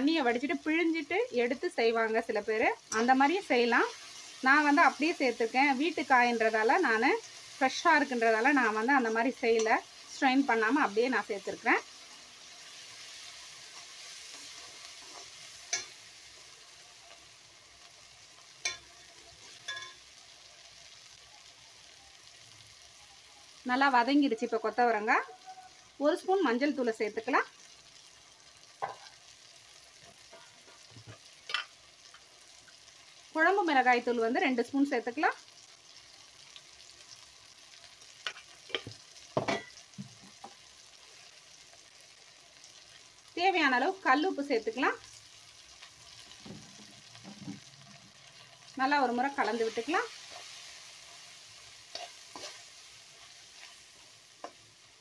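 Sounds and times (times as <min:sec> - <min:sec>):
vegetables sizzling in hot oil: 0:00.0 - 0:55.0
metal ladle clinking on pan: 0:19.6 - 0:20.0, 0:31.5 - 0:31.7.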